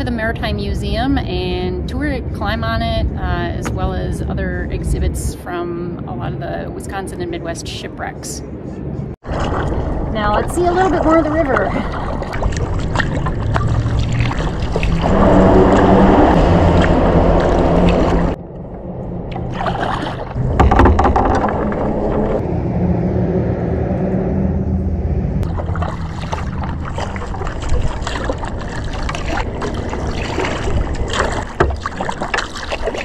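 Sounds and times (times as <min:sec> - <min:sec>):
heavy low rumble: 0:00.0 - 0:31.6
kayak paddle strokes in water: 0:09.2 - 0:18.4, 0:25.4 - 0:33.0
water splashes and drips: 0:09.2 - 0:18.4, 0:19.3 - 0:22.4, 0:25.4 - 0:33.0.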